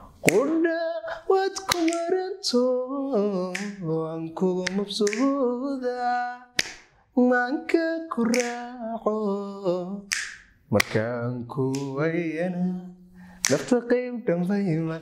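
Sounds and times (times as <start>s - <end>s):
man singing unaccompanied: 0.0s - 15.0s
finger snapping: 0.2s - 0.5s, 1.7s - 2.1s, 3.5s - 3.8s, 4.6s - 5.4s, 6.6s - 6.9s, 8.3s - 8.7s, 10.1s - 11.0s, 11.7s - 12.0s, 13.4s - 13.7s.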